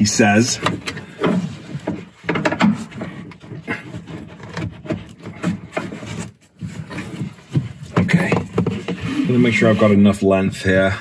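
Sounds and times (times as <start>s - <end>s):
seat belt rubbing and scraping: 3.2s - 10.2s.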